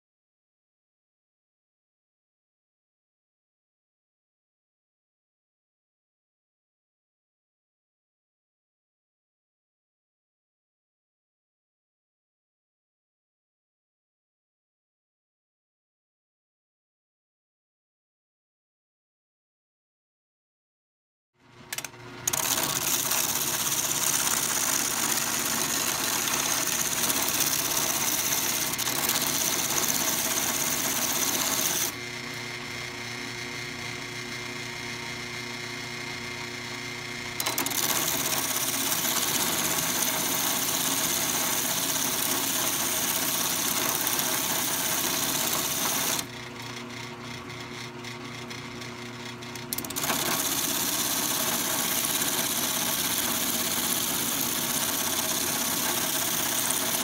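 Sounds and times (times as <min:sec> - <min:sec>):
drill press motor hum: 0:21.4 - 0:57.0.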